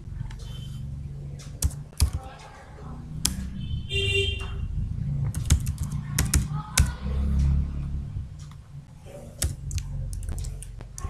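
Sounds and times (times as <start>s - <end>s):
low steady background hum: 0.0s - 11.0s
typing on computer keyboard: 1.4s - 2.5s, 5.3s - 7.0s, 9.3s - 11.0s.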